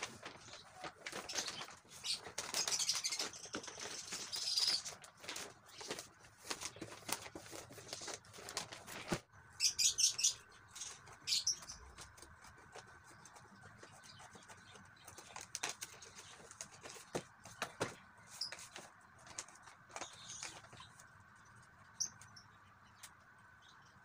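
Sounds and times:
crisp paper crackles: 0.0 - 9.3, 10.8 - 21.1
wrapping paper rustling: 0.0 - 9.3, 11.8 - 21.0.

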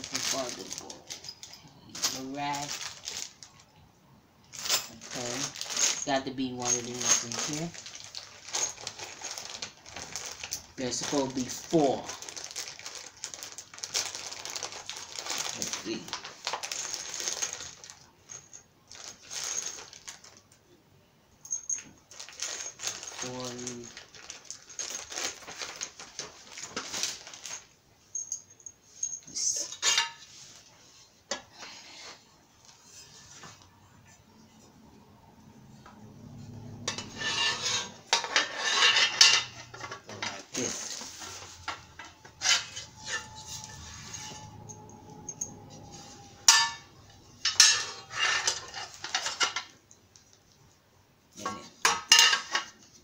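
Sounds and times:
plastic bags crinkling: 0.0 - 3.7, 4.5 - 20.6, 21.7 - 27.8, 36.9 - 50.5
metal bolts and nuts clinking: 41.6 - 50.0.

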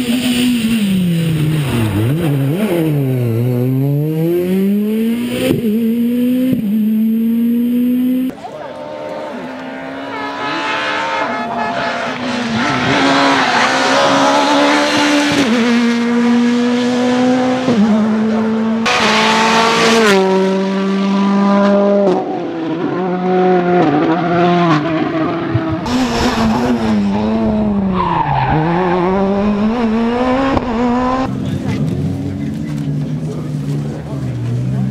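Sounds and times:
rally car engines revving: 0.0 - 34.9.

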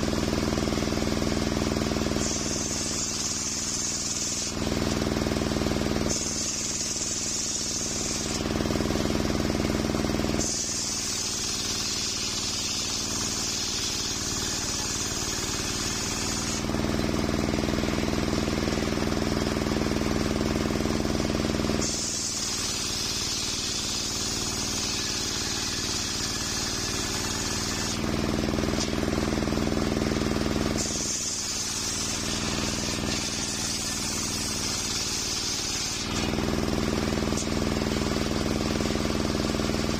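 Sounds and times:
drive motor hum: 13.1 - 22.1
circular saw ripping log: 25.0 - 29.1, 30.7 - 37.6.

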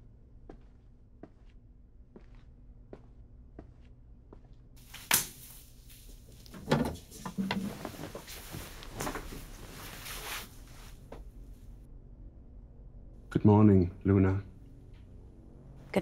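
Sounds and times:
papers slapped onto table: 4.9 - 5.6
coat fabric rustling: 5.5 - 11.4
chair knocking and creaking: 6.5 - 9.3.

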